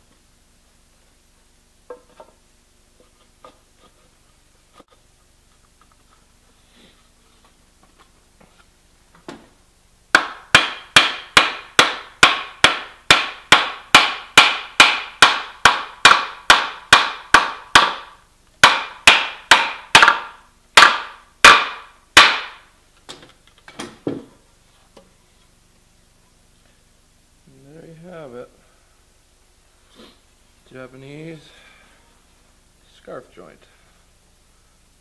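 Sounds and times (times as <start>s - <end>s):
wooden mallet knocking on timber: 10.2s - 18.0s, 18.6s - 22.5s.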